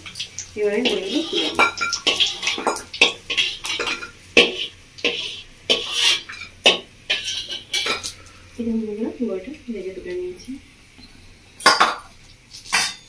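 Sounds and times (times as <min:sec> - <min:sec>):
metal spatula clinking on brass pot: 0:00.8 - 0:08.1, 0:12.6 - 0:13.0.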